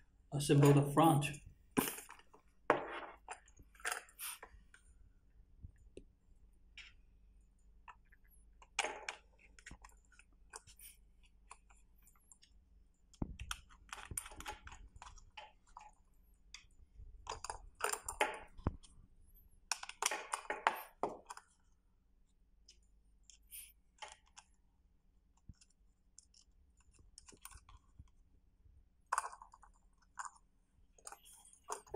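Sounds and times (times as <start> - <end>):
plastic parts clicking and scraping: 1.8 - 4.9, 7.8 - 21.8, 22.6 - 24.6, 25.3 - 28.2, 29.0 - 31.9.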